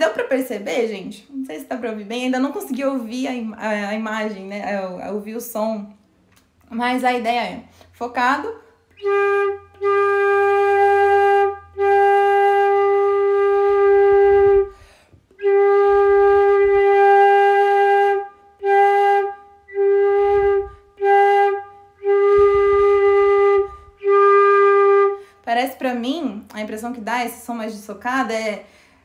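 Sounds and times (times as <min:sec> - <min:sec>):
flute playing held notes: 0:08.9 - 0:25.2.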